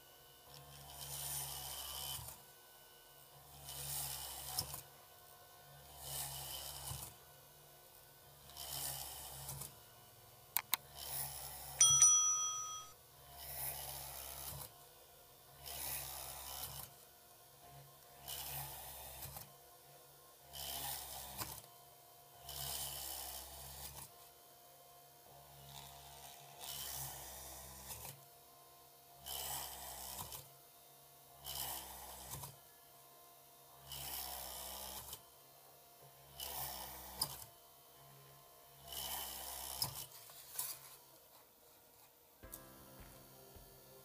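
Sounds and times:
small drill motor running: 0:08.4 - 0:09.7, 0:33.8 - 0:35.2, 0:38.8 - 0:40.1.

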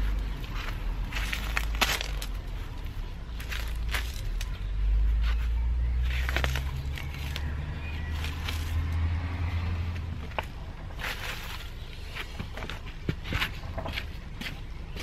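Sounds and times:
weeds crackling and rustling: 0:00.0 - 0:04.6, 0:06.0 - 0:12.8
gravel shifting: 0:00.0 - 0:15.0.

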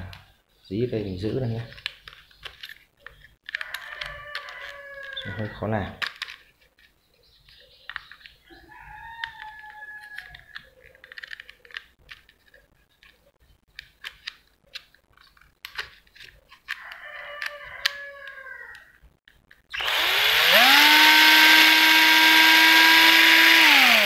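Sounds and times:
rooster crowing: 0:03.6 - 0:05.7, 0:08.6 - 0:10.5, 0:16.8 - 0:19.0.

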